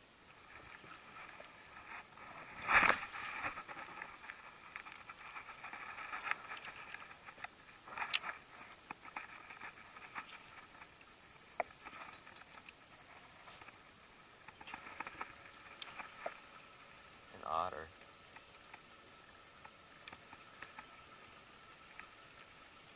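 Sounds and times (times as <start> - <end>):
high-pitched insect chorus: 0.0 - 22.9.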